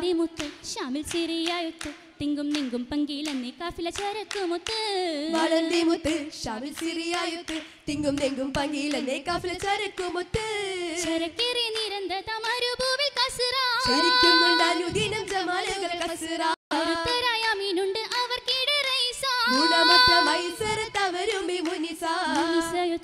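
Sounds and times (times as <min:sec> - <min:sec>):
women singing: 0:00.0 - 0:23.0
sharp hand claps: 0:00.3 - 0:10.4, 0:13.8 - 0:16.2, 0:17.0 - 0:19.2, 0:20.1 - 0:22.6.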